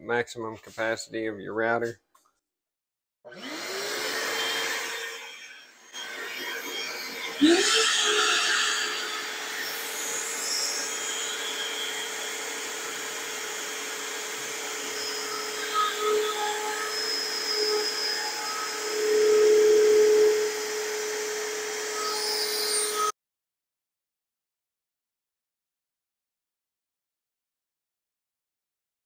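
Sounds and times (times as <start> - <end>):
router spindle whining: 3.3 - 23.1.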